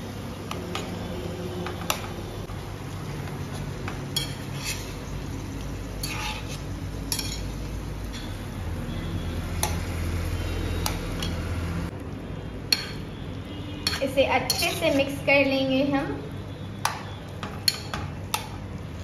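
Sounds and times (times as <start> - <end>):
metal spatula scraping pan: 3.5 - 5.1, 6.0 - 7.5, 13.8 - 15.2.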